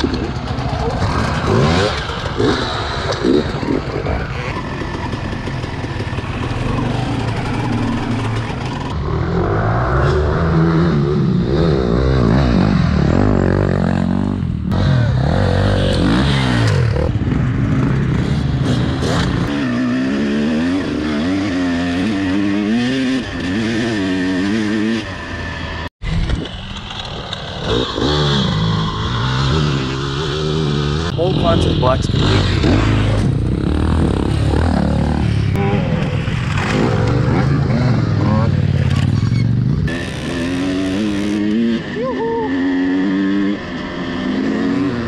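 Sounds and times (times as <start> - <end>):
dirt bike engines revving: 0.0 - 45.0.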